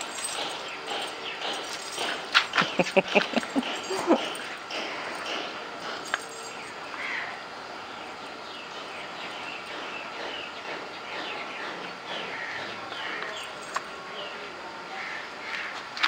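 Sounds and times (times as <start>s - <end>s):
small birds chirping: 6.2s - 14.4s.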